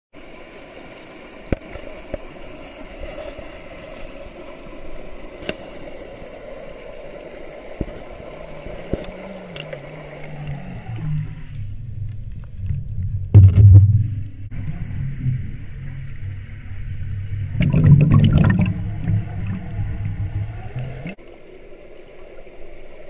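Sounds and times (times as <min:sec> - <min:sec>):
stream running over stones: 0:00.2 - 0:13.8, 0:14.4 - 0:23.0
low hum: 0:06.8 - 0:22.7.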